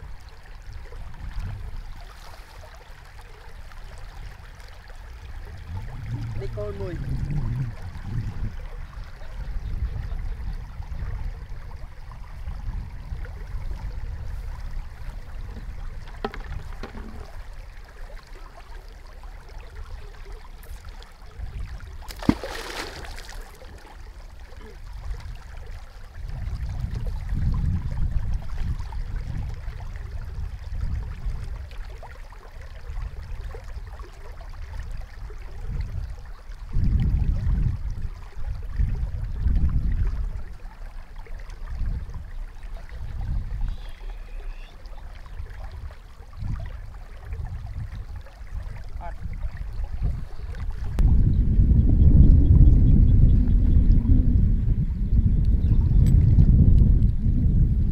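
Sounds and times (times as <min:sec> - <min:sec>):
water flowing: 0:00.0 - 0:51.0
low rumbling in gusts: 0:05.2 - 0:17.6, 0:23.1 - 0:31.7, 0:36.7 - 0:40.6, 0:45.4 - 0:57.9.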